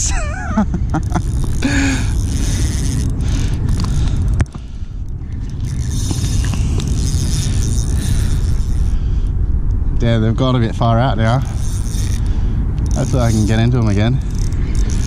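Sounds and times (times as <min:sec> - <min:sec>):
steady low rumble: 0:00.0 - 0:15.0
spinning reel being wound: 0:00.8 - 0:09.1, 0:11.3 - 0:15.0.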